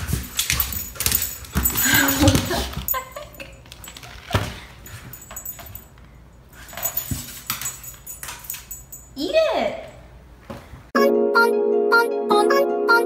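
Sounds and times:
light jingling: 0.1s - 10.2s.

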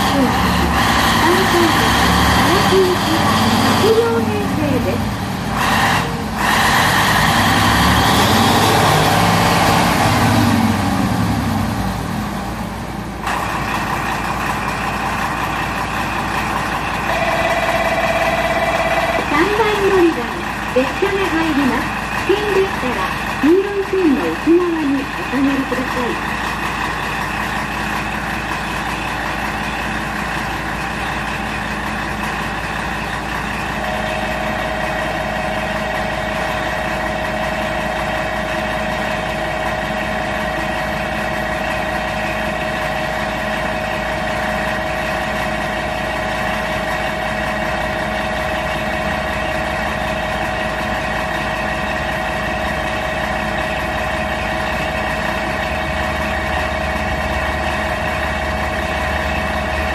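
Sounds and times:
diesel engine idling: 0.0s - 59.9s
high-pitched whine: 17.1s - 21.9s.

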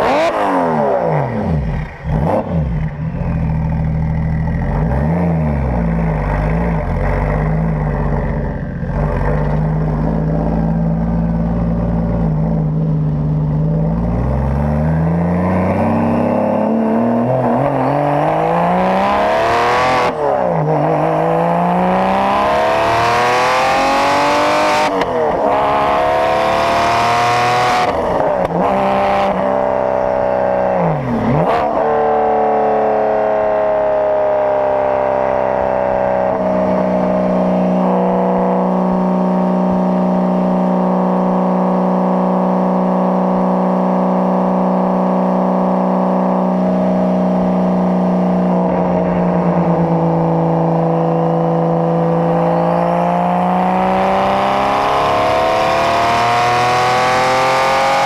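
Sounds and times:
car exhaust engine note: 32.6s - 58.0s.

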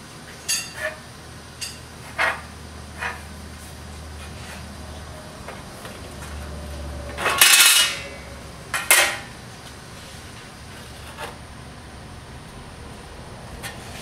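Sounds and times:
steel sheets clattering on table: 7.2s - 8.2s.

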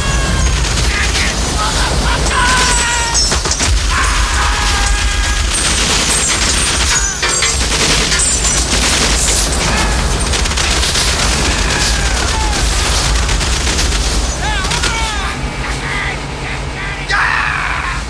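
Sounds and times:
automatic gunfire: 0.0s - 15.1s
bullets striking metal: 2.7s - 14.9s
low booms: 3.5s - 6.3s.

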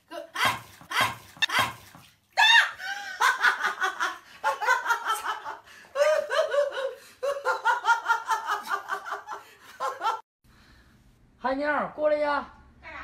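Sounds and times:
woman laughing: 2.4s - 10.2s.

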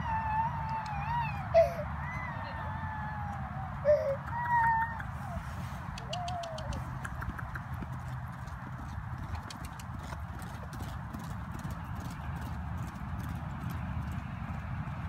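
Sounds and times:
pony hoofbeats on sand: 7.0s - 15.0s.

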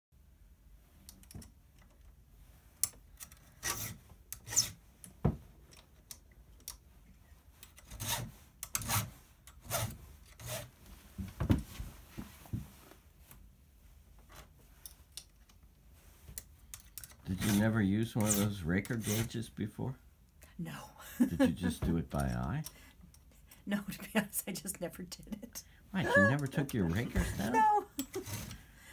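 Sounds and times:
file rasping on chainsaw chain: 18.2s - 19.4s.

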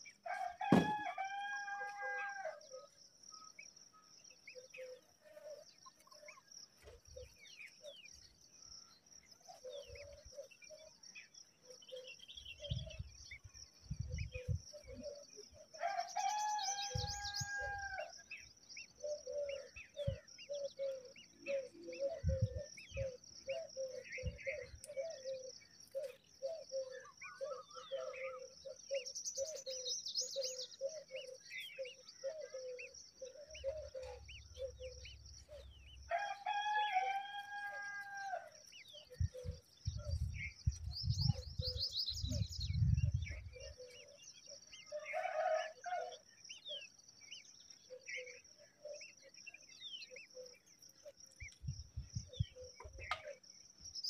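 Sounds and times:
rooster crowing: 0.3s - 2.7s, 15.8s - 18.2s, 36.1s - 38.6s, 44.9s - 46.2s.

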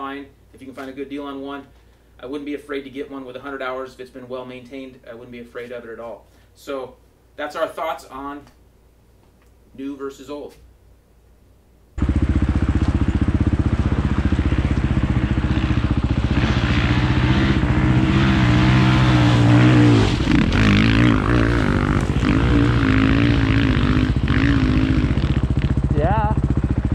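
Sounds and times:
dirt bike engine idling: 12.0s - 26.9s
dirt bike riding past: 12.0s - 26.9s.

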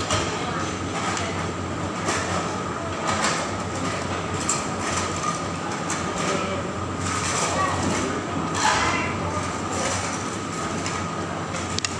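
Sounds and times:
busy restaurant din: 0.0s - 11.9s.

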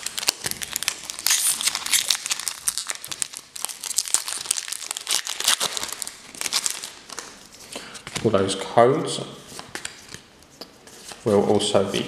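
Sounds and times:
foil wrapper crinkling: 0.0s - 7.6s.

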